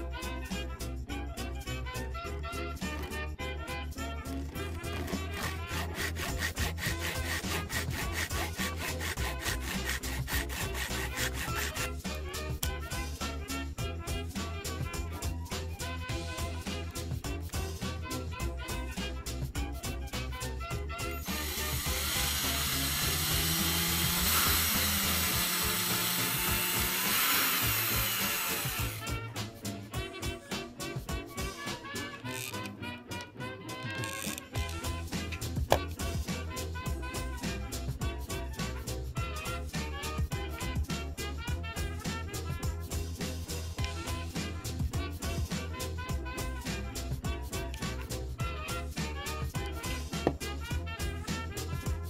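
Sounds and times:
hand saw cutting wood: 4.2 - 12.5, 21.2 - 29.2
cordless drill boring into wood: 4.8 - 11.9, 21.2 - 29.1.

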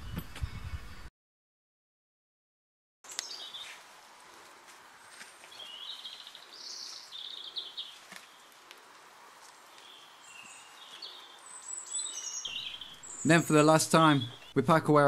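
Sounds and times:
birds singing faintly: 0.0 - 1.1, 3.0 - 14.9
steady background hiss: 3.1 - 14.5.

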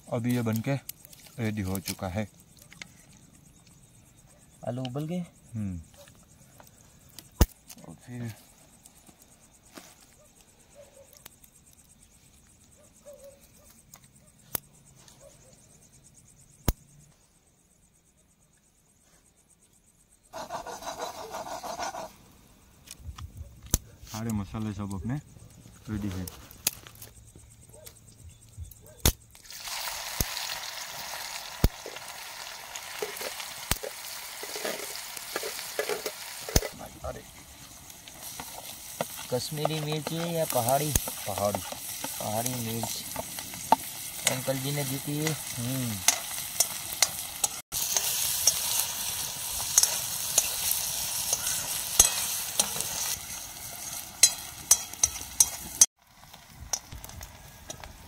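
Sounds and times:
food sizzling in hot oil: 29.3 - 58.0.

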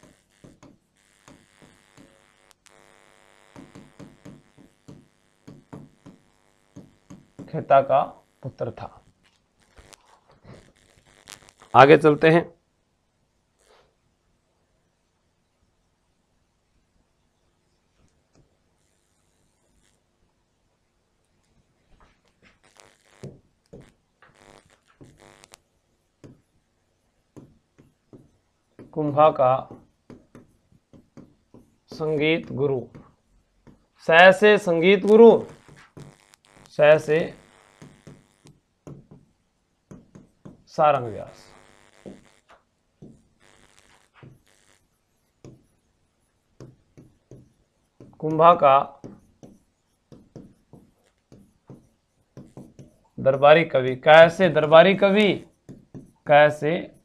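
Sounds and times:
marker scratching on whiteboard: 0.0 - 2.2, 3.5 - 7.7, 26.2 - 26.5, 27.3 - 36.1, 39.9 - 41.4, 43.0 - 57.0.

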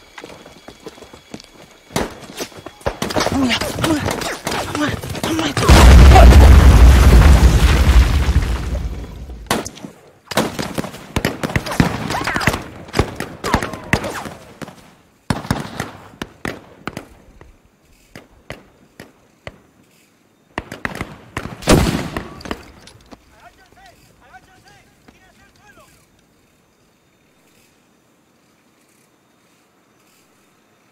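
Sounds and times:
explosion: 5.6 - 9.4.

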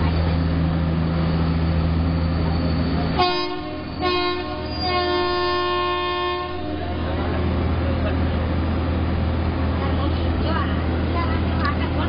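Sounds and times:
train running rumble: 0.0 - 12.0
locomotive horn blast: 3.1 - 7.8.

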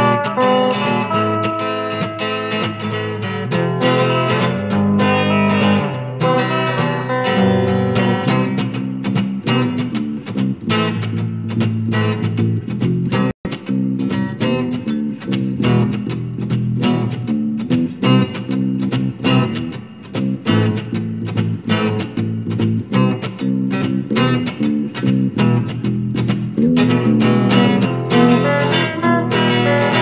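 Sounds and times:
guitar plucking notes: 0.0 - 30.0.

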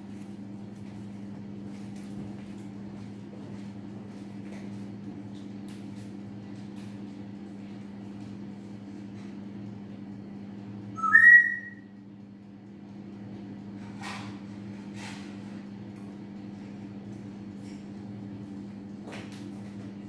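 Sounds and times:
two-note whistle: 11.0 - 11.9.

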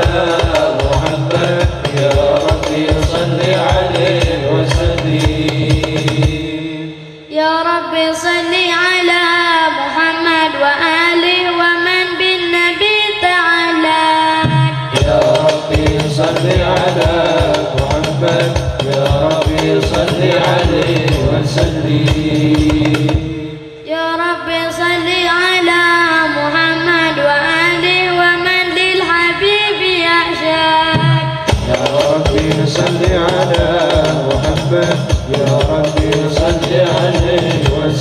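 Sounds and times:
frame drums beating: 0.0 - 6.9, 14.5 - 23.8, 31.0 - 38.0
men singing: 0.0 - 7.2, 14.9 - 23.8, 31.1 - 38.0.

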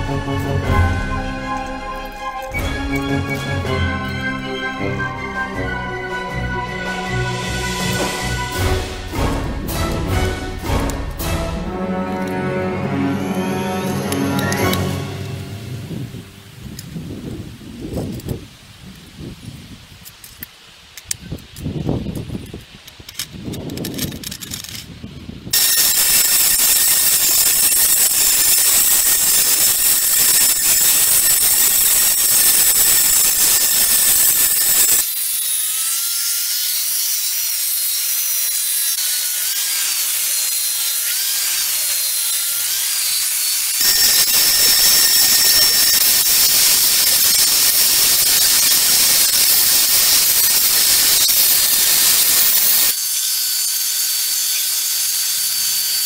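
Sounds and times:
belt sander whining: 25.6 - 53.0
abrasive belt hissing: 25.6 - 53.3.

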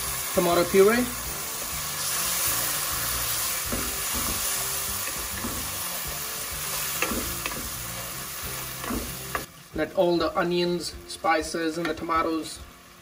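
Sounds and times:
tomatoes sizzling in oil: 0.0 - 13.0
wooden spoon against pan: 1.6 - 9.5.

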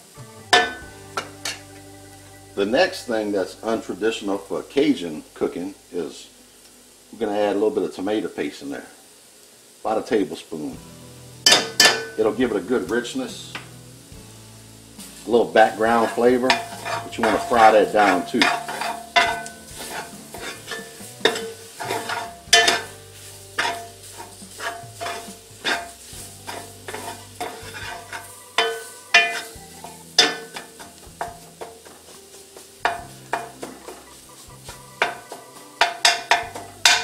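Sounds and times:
faint sizzle: 0.0 - 37.0
metal spoon scraping a pot: 16.0 - 23.0, 23.6 - 32.0, 35.0 - 37.0.

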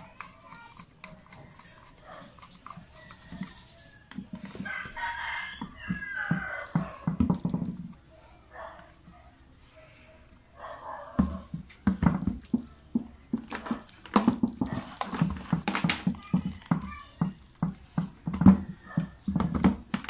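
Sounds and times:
rooster crowing: 2.9 - 7.1.

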